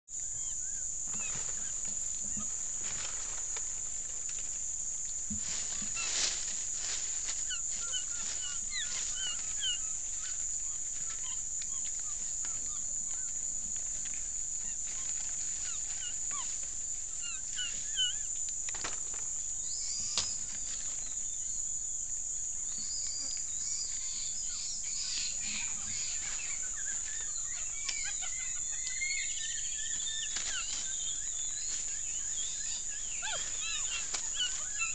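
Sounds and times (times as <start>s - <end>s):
squeaky chirps: 7.5s - 13.3s, 17.1s - 18.3s, 22.8s - 34.9s.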